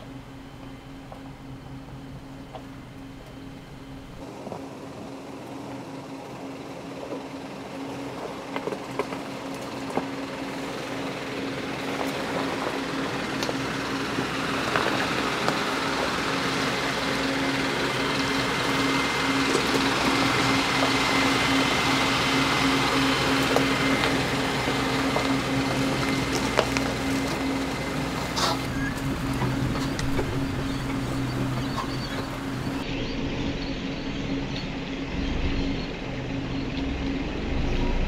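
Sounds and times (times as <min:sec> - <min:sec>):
truck diesel engine running: 0:00.0 - 0:38.0.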